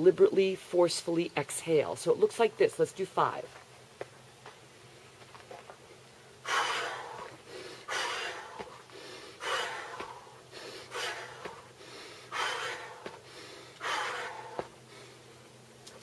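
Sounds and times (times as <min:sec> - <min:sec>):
woman exhaling forcefully: 0:06.4 - 0:11.6, 0:12.2 - 0:14.6.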